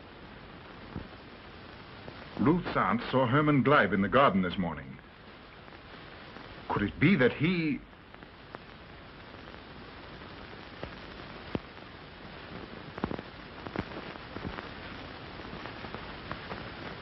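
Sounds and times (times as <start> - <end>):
crackles and pops: 0.0 - 17.0
film soundtrack hiss: 0.0 - 17.0.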